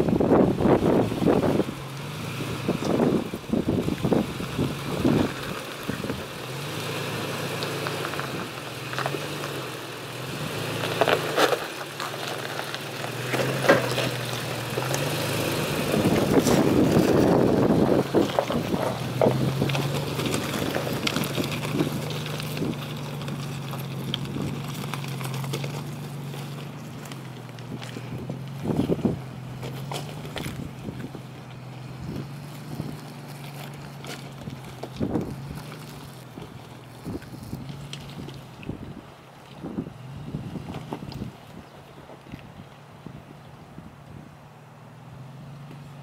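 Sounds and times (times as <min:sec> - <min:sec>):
tires crunching over gravel: 0:00.0 - 0:46.0
truck engine running at low speed: 0:00.0 - 0:46.0
rocks knocking underneath: 0:07.4 - 0:09.7, 0:10.5 - 0:38.9.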